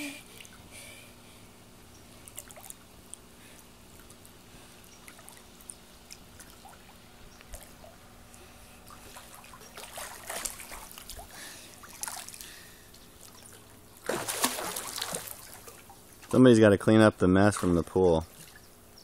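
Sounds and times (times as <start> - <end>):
pool water sloshing: 2.1 - 18.8
small water splashes: 2.2 - 3.2, 5.0 - 8.0, 8.8 - 16.4, 17.5 - 18.8.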